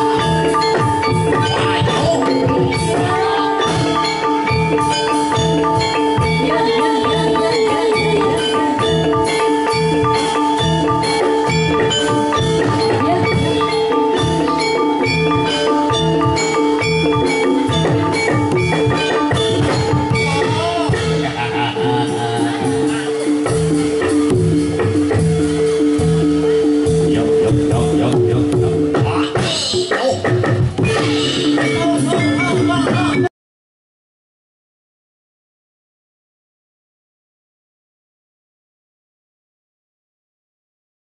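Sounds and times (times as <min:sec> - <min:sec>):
ringing metallophones and gongs: 0:00.0 - 0:30.0, 0:30.6 - 0:33.3.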